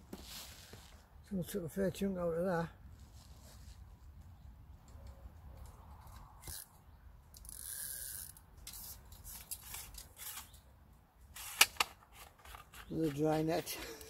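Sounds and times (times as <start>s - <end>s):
fishing tackle rustling and clicking: 4.9s - 10.6s, 11.4s - 14.0s.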